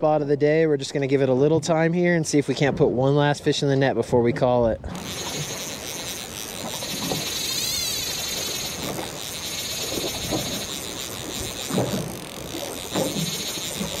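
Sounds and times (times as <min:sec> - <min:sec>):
water slapping against boat: 0:04.3 - 0:14.0.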